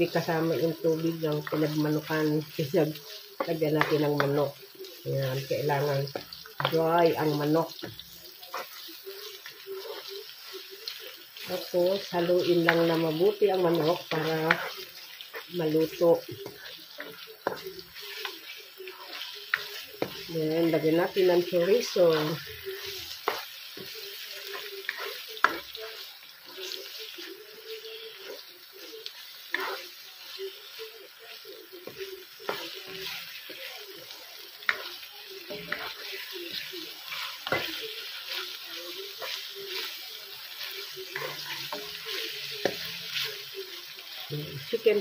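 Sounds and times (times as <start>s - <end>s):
chicken and onion sizzling in oil: 0.0s - 45.0s
spatula knocking and scraping pan: 3.3s - 4.4s, 11.4s - 18.4s, 19.1s - 25.8s, 29.5s - 29.8s, 34.6s - 38.5s.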